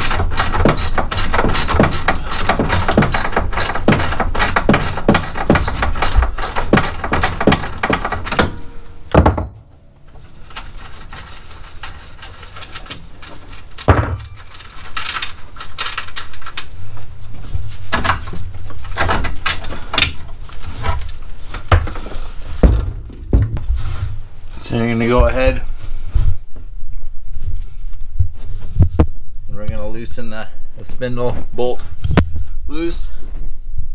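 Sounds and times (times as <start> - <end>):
metal parts clinking and knocking: 0.0 - 17.0, 17.8 - 23.6.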